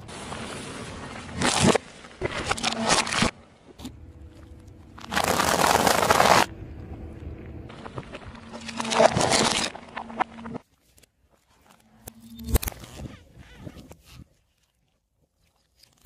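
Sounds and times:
dense crackling crunch: 4.9s - 6.5s
tyre crunching objects: 5.0s - 6.5s.

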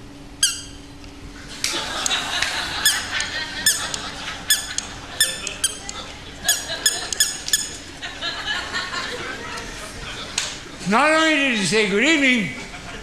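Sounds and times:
high-pitched mouse-like squeaks: 0.4s - 0.8s, 3.7s - 5.9s, 6.5s - 7.8s
audience laughter: 1.4s - 10.9s, 12.5s - 13.0s.

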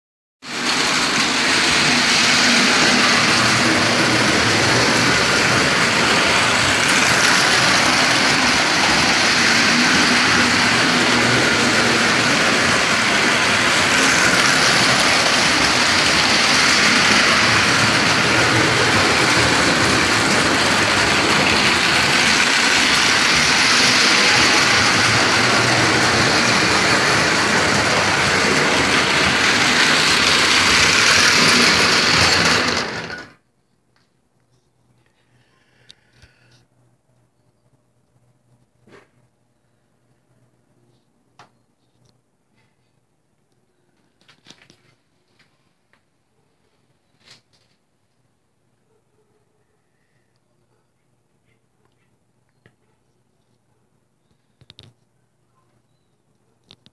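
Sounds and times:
toy train whirring on rails: 0.4s - 33.4s.

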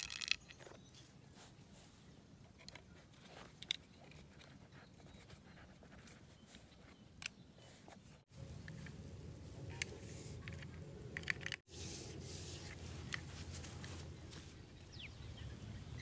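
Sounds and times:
plastic pipe parts clicking: 0.0s - 0.8s, 9.8s - 11.6s.

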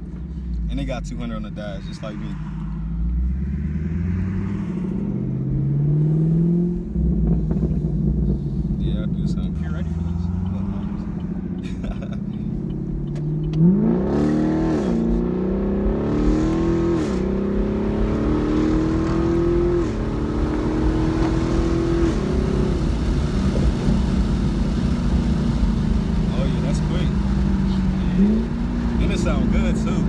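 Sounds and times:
car engine accelerating: 0.0s - 30.0s.

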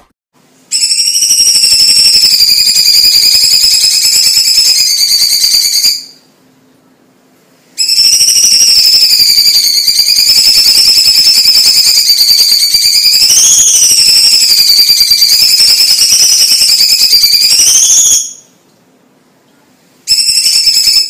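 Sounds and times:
bird singing fast trill: 0.7s - 6.2s, 7.8s - 18.5s.

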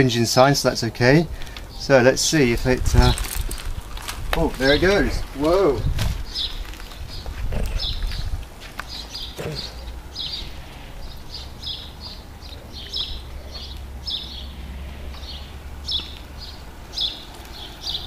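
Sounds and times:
small birds chirping: 0.0s - 18.0s
steady low rumble: 0.9s - 9.1s.

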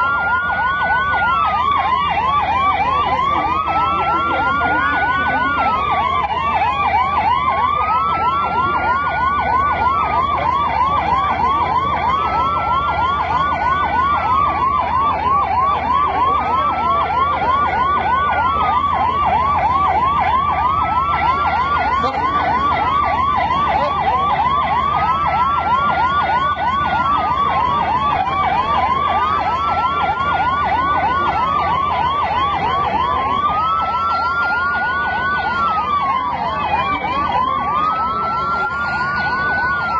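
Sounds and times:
siren wailing: 0.0s - 39.9s
siren yelping: 0.0s - 39.9s.

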